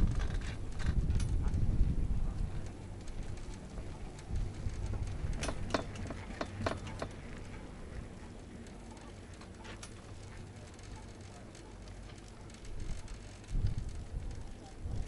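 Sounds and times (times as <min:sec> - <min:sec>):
low wind rumble: 0:00.0 - 0:15.0.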